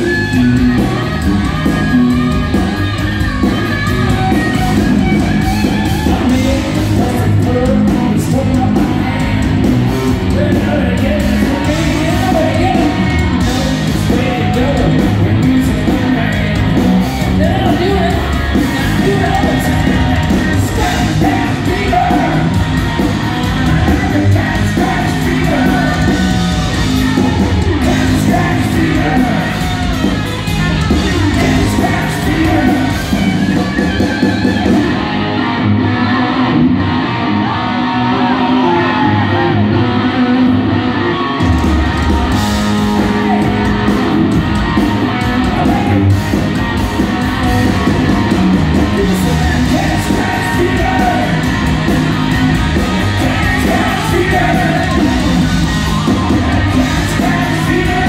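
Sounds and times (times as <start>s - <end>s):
live hard rock band playing: 0.0s - 58.0s
sung and shouted vocals: 18.8s - 22.6s, 23.4s - 29.9s, 31.3s - 33.3s, 49.0s - 51.6s, 53.0s - 58.0s.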